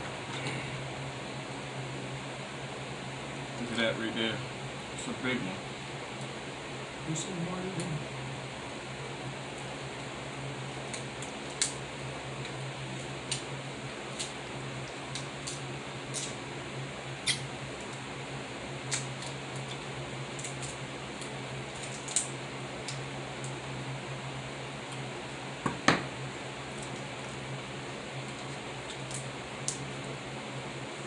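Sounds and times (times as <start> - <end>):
crab shells cracking: 14.1 - 16.4, 18.8 - 23.6, 28.3 - 29.9.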